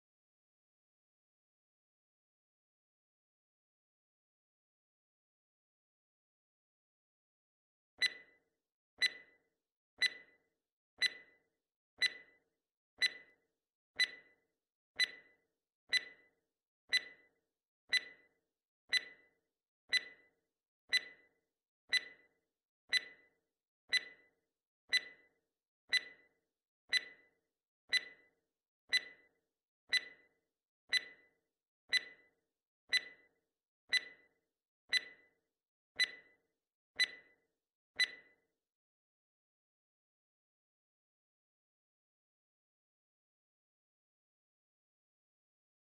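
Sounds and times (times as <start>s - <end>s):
countdown timer ticking: 12.0s - 12.3s, 15.9s - 16.2s, 16.9s - 17.2s, 17.9s - 18.2s, 18.9s - 19.2s, 19.9s - 20.2s, 20.9s - 21.2s, 21.9s - 22.2s, 22.9s - 23.2s, 23.9s - 24.2s, 24.9s - 25.2s, 25.9s - 26.2s, 26.9s - 27.2s, 27.9s - 28.2s, 28.9s - 29.2s, 29.9s - 30.2s, 30.9s - 31.2s, 31.9s - 32.2s, 32.9s - 33.2s.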